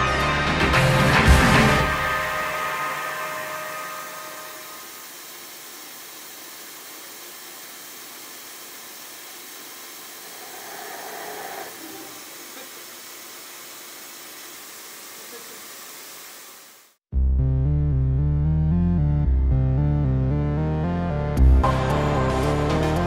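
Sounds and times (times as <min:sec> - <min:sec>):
metal cutting: 0:01.6 - 0:17.0
machine-tool spindle hiss: 0:04.0 - 0:17.0.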